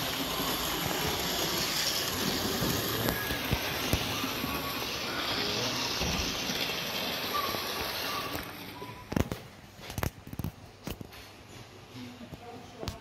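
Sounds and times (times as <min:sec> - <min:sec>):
model train running on track: 0:00.0 - 0:08.8.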